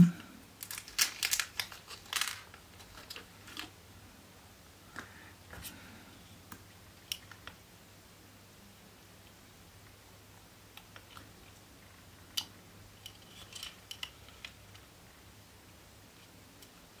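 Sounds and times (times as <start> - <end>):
plastic parts clicking and tapping: 0.6 - 3.7, 12.3 - 14.9.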